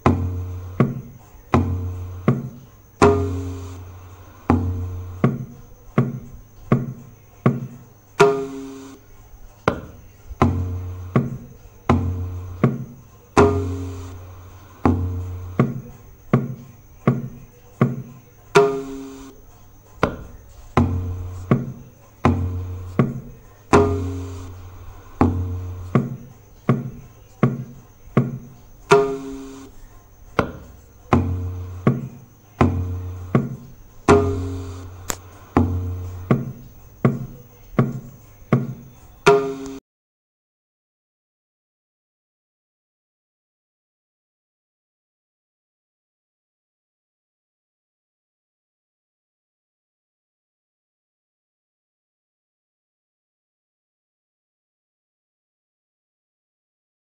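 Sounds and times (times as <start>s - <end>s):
tabla playing: 0.0s - 9.0s, 9.7s - 19.3s, 20.0s - 29.6s, 30.4s - 39.8s.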